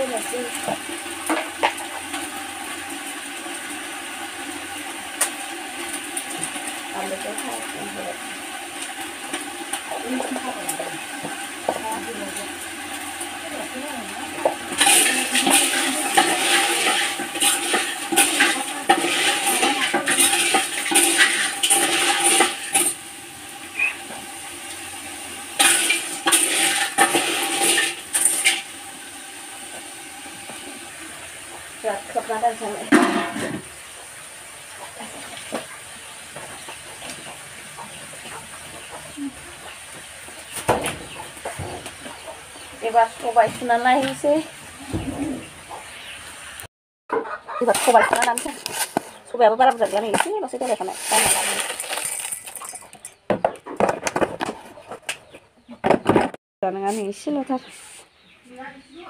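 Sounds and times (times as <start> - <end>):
steam hissing: 0.0 - 37.6
hot pot sizzling: 0.0 - 46.7, 47.5 - 54.5
metal spoon scraping a pot: 14.4 - 23.0, 25.6 - 28.7, 47.6 - 53.2.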